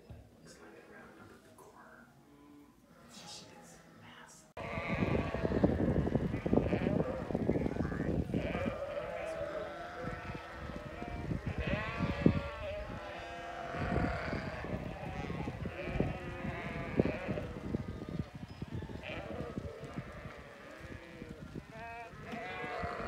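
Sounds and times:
sheep bleating: 4.6s - 23.0s.

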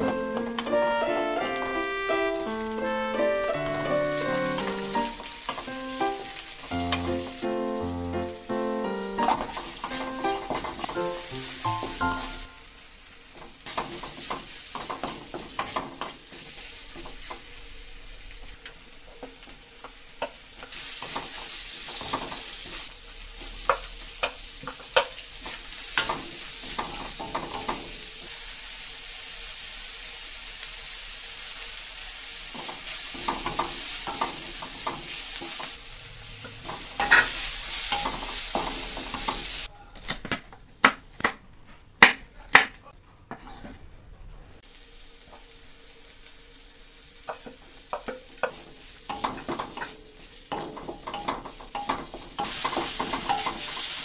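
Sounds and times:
vegetables sizzling in oil: 0.0s - 39.7s, 44.6s - 54.0s
spatula scraping a wok: 32.6s - 39.7s, 47.3s - 54.0s.

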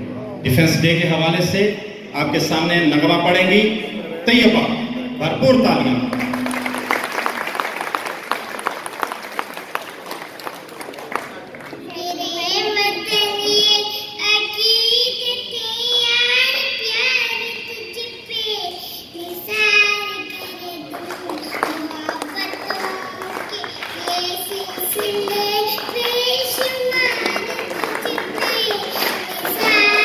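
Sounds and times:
audience clapping: 5.9s - 12.0s, 20.3s - 30.0s
girl singing into a microphone: 11.9s - 30.0s.

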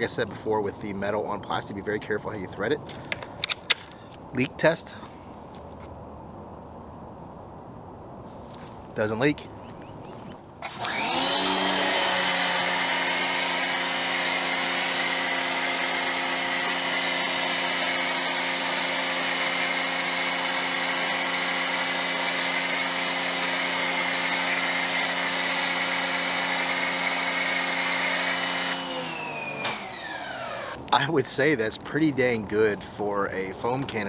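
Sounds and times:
pressure washer motor humming: 10.6s - 30.8s
foam spray hissing: 19.8s - 23.6s.

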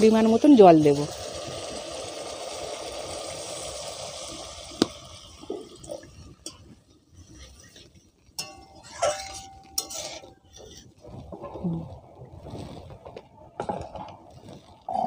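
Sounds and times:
water pouring: 0.0s - 15.0s
metal spatula scraping a pot: 6.4s - 11.6s.

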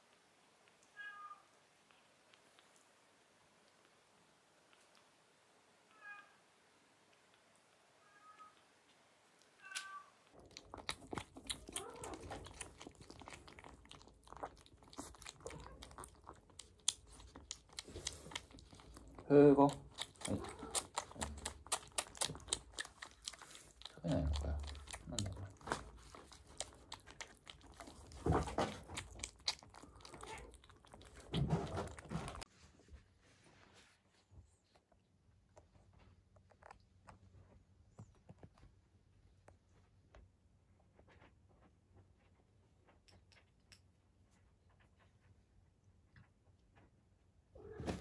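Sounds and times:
kittens chewing wetly: 0.0s - 5.6s, 9.4s - 32.5s
kitten mewing: 11.0s - 13.0s, 19.7s - 23.0s
wavering kitten vocal: 19.7s - 25.6s.

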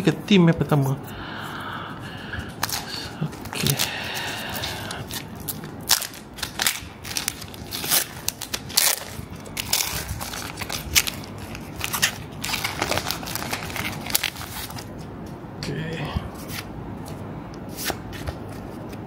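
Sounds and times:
foil wrapper tearing and crinkling: 4.5s - 14.9s.

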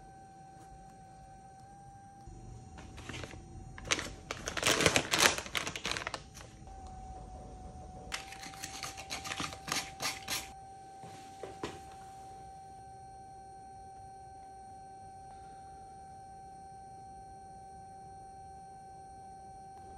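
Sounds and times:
faint high tone hum: 0.0s - 19.9s
foil pouch crinkling: 2.8s - 6.7s, 8.1s - 10.5s.

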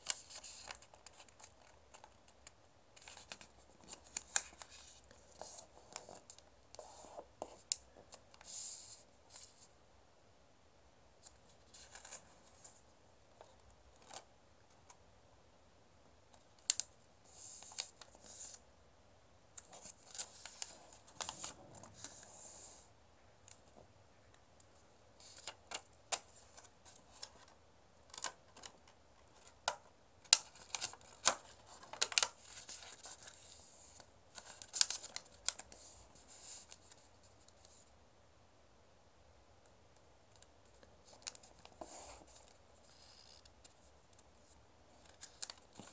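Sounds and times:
paper folding and rustling: 0.0s - 9.7s, 11.2s - 12.8s, 19.6s - 22.8s, 25.2s - 37.8s, 40.6s - 45.9s.

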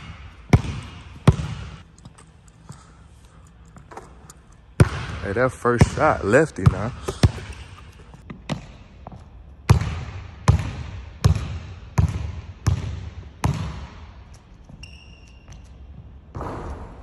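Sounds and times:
basketball bouncing on wooden floor: 0.0s - 1.8s, 4.8s - 5.2s, 6.6s - 14.0s
faint short squeaks: 14.8s - 15.8s.

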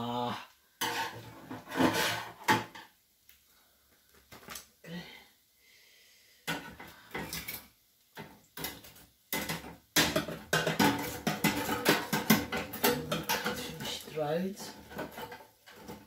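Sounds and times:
metal spatula scraping wire rack: 0.8s - 2.4s, 10.8s - 16.0s.

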